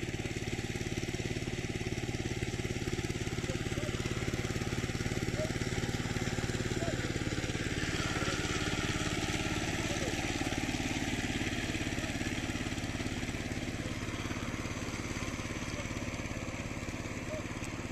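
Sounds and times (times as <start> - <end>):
small engine running: 0.0 - 17.9.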